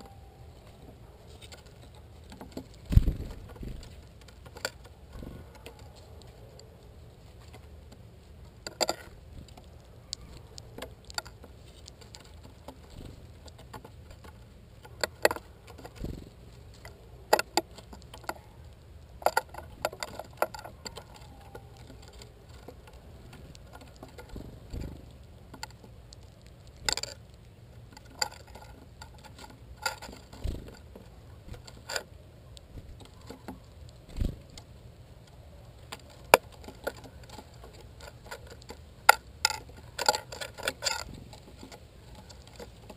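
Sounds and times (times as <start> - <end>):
birds pecking and cracking seeds: 0.0 - 42.9
dull thumps: 2.4 - 4.0.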